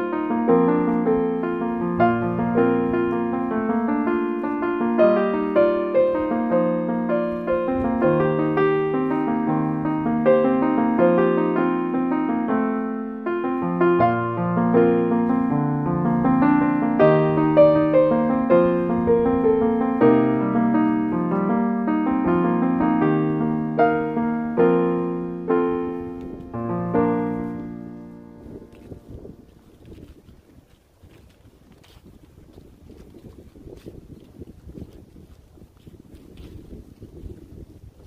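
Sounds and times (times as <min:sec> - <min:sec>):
gentle piano music: 0:00.0 - 0:30.0.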